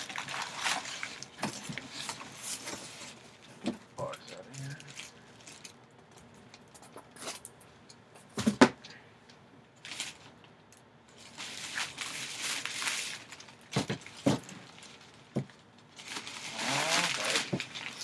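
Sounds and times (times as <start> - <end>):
nylon bag rustling: 0.0 - 3.2, 11.2 - 18.0.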